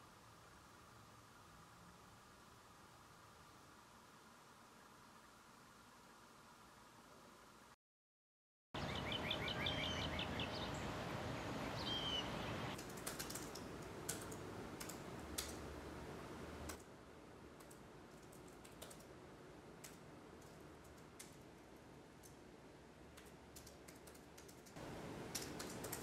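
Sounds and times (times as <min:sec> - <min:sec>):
birds chirping: 0:08.8 - 0:12.8
laptop keyboard typing: 0:12.8 - 0:15.6, 0:17.5 - 0:19.2, 0:23.1 - 0:26.0.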